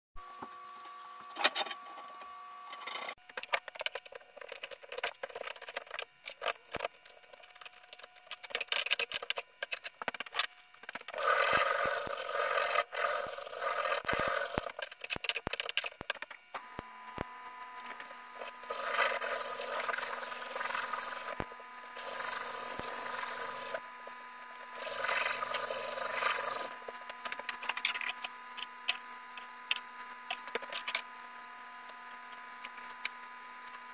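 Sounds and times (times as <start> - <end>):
rasping on wood: 18.7 - 21.4, 22.0 - 23.8, 24.8 - 26.7.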